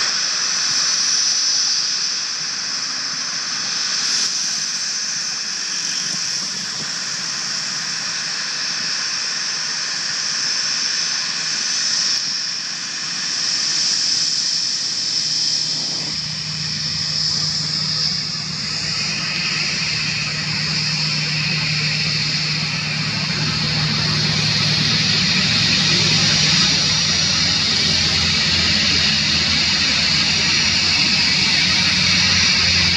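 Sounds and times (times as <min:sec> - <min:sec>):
jet engines whining: 0:00.0 - 0:32.9
low hum: 0:14.2 - 0:32.9.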